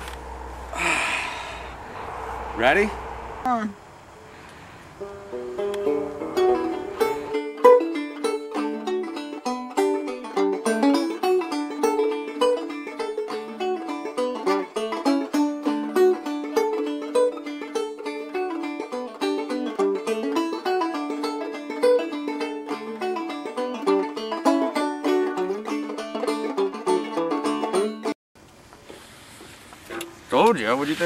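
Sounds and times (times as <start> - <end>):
banjo playing plucked notes: 5.0 - 28.2.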